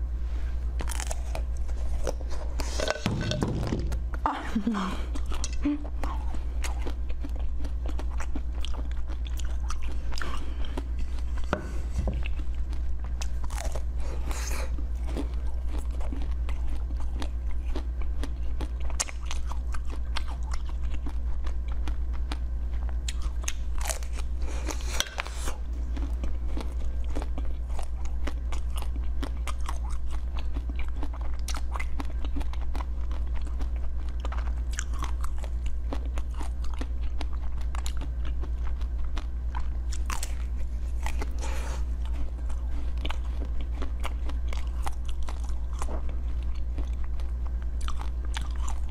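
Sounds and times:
steady low hum: 0:00.0 - 0:48.9
ice being chewed with crunches: 0:12.1 - 0:48.9.

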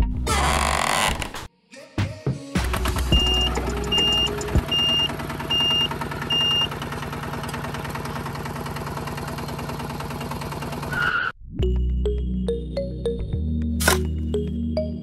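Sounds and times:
diesel tractor engine chugging: 0:02.7 - 0:11.1
reversing alarm beeping: 0:03.2 - 0:06.7.

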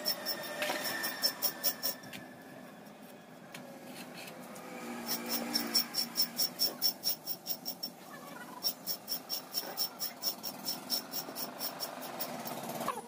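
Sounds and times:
insect chirping: 0:05.1 - 0:08.0.

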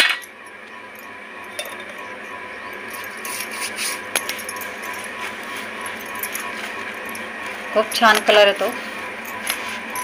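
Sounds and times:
bangles clinking: 0:00.9 - 0:08.4, 0:09.2 - 0:10.0
hands kneading dough: 0:03.2 - 0:10.0.

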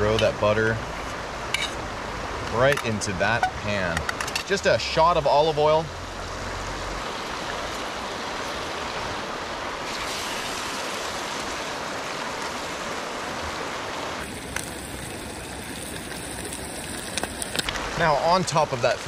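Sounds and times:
creek running over rocks: 0:00.0 - 0:19.0
fish frying in a pan: 0:14.2 - 0:18.1.

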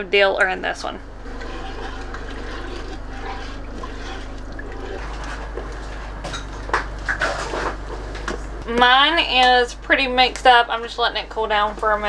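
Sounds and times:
brine bubbling in a pot: 0:00.0 - 0:08.6
wooden spoon stirring: 0:00.4 - 0:09.5.

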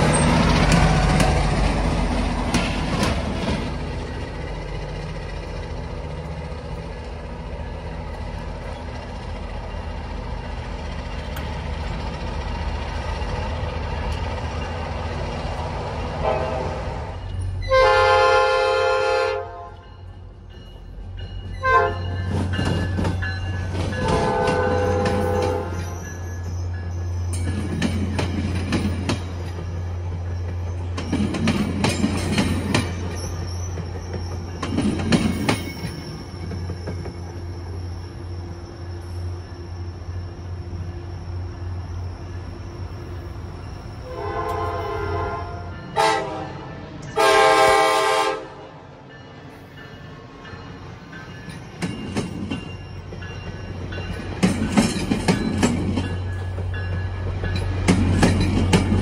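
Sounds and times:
train wheels clacking: 0:00.0 - 0:17.6, 0:19.8 - 0:38.0, 0:49.2 - 0:59.0
diesel train engine rumble: 0:00.0 - 0:59.0
train horn blasts: 0:16.2 - 0:16.9, 0:17.6 - 0:19.9, 0:21.6 - 0:22.2, 0:24.0 - 0:25.9, 0:44.0 - 0:48.7.

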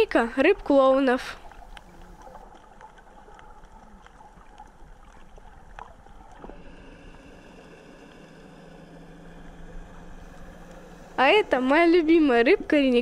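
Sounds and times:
steady low hum: 0:00.0 - 0:13.0
underwater wash of water: 0:00.6 - 0:13.0.

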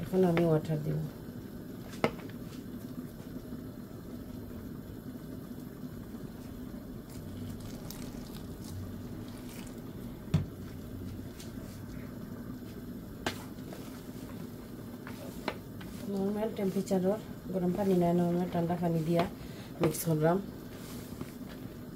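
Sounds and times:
water pouring onto flour: 0:07.0 - 0:10.0.

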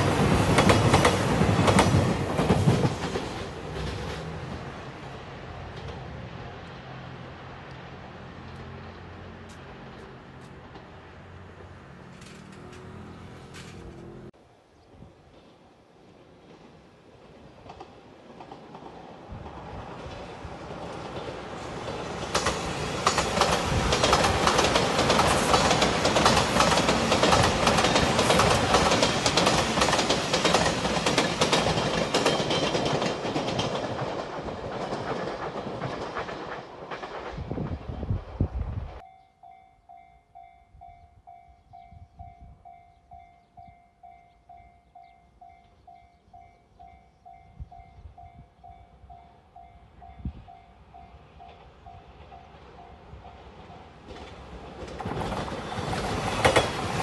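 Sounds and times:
wheels clacking on rails: 0:00.0 - 0:07.0, 0:07.7 - 0:14.3, 0:16.4 - 0:39.0, 0:41.3 - 0:57.0
train rushing past: 0:00.0 - 0:14.4, 0:15.0 - 0:39.0, 0:48.9 - 0:57.0.

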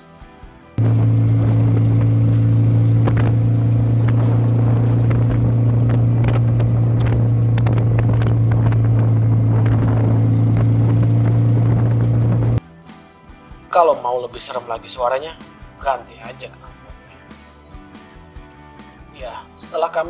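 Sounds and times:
exhaust crackles: 0:00.8 - 0:12.6
motorcycle engine drone: 0:00.8 - 0:12.6.

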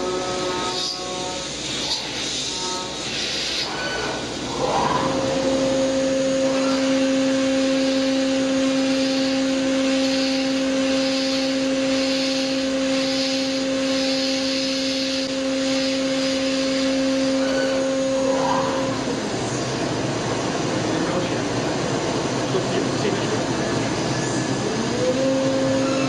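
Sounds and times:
milling machine whine: 0:00.0 - 0:26.0.

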